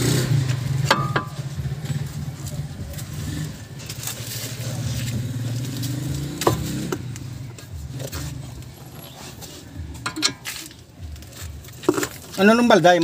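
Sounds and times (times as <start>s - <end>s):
vehicle engine running: 0.0s - 12.1s
sharp metal knocks: 0.9s - 1.4s.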